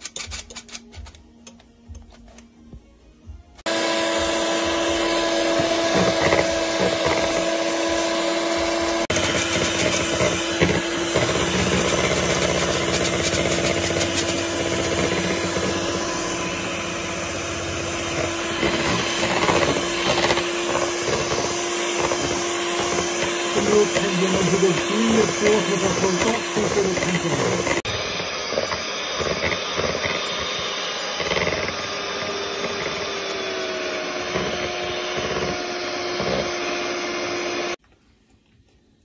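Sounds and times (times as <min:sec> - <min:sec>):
electric mixer running: 0:03.6 - 0:37.8.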